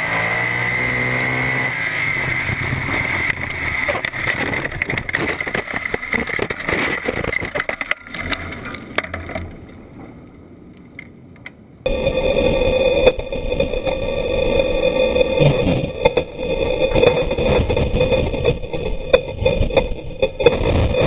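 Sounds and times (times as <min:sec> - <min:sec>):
sprint car crashing and flipping: 0:00.0 - 0:10.1
sprint car engine drone: 0:00.0 - 0:21.0
clattering knocks and scraping: 0:01.2 - 0:11.6.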